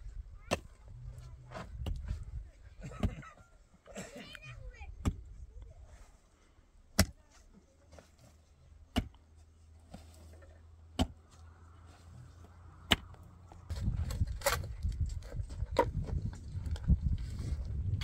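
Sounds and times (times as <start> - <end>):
pick striking stony soil: 1.4 - 3.2, 6.9 - 11.4, 12.8 - 18.0.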